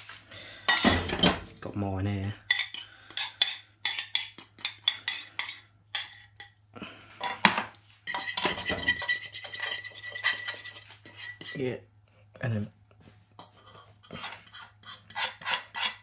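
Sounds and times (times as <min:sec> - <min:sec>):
fork scraping a pan: 0:02.2 - 0:06.6, 0:07.2 - 0:11.7, 0:13.4 - 0:16.0
metal fork tapping a bowl: 0:02.5 - 0:06.6.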